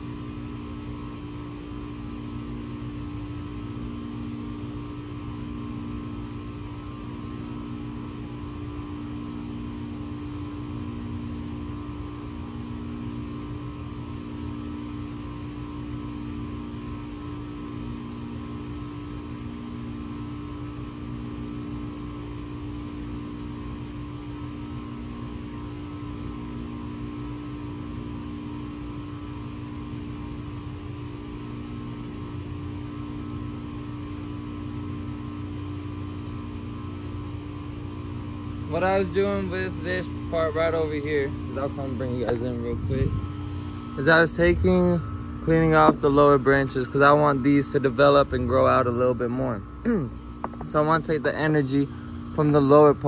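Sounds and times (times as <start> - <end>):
steady mechanical hum: 0.0 - 53.0
low pulsing tone: 38.7 - 52.5.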